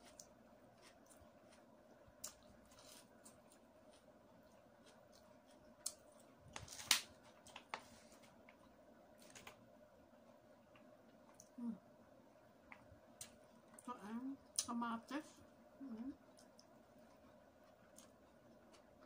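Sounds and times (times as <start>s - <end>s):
person chewing: 0.0s - 7.6s, 15.9s - 19.0s.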